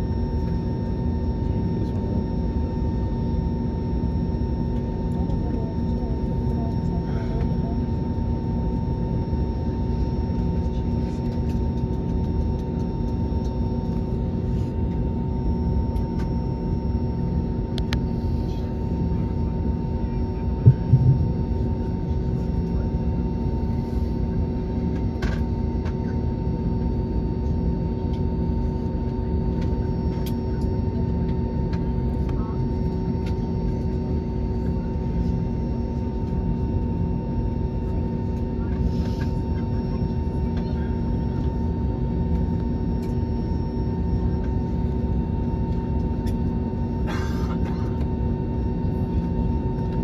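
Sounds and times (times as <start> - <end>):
airliner cabin rumble: 0.0 - 50.0
constant hums: 0.0 - 50.0
short thump: 20.7 - 21.3.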